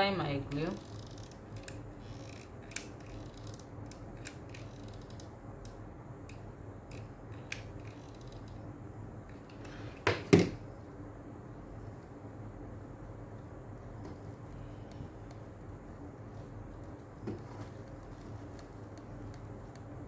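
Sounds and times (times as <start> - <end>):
glue gun clicks and creaks: 0.9 - 5.3.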